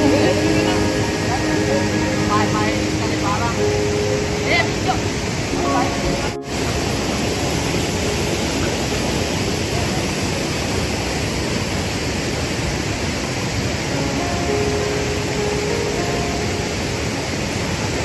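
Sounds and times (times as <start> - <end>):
river and waterfall rushing: 0.0 - 18.0.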